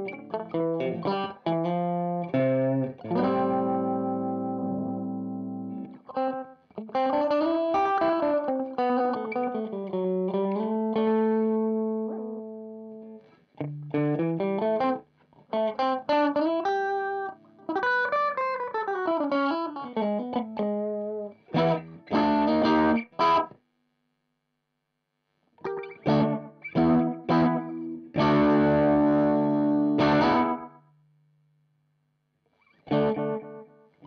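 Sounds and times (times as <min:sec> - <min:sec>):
electric guitar with delay: 0:00.0 - 0:12.9, 0:13.7 - 0:23.4, 0:25.6 - 0:30.7.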